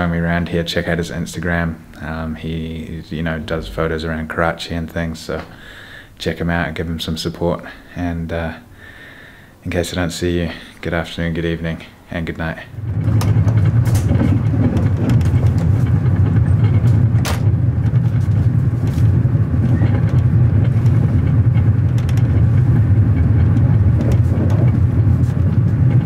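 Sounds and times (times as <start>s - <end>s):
train rumble: 0.0s - 7.7s, 10.5s - 26.0s
sharp clicks and rattles: 3.2s - 4.3s, 12.7s - 26.0s.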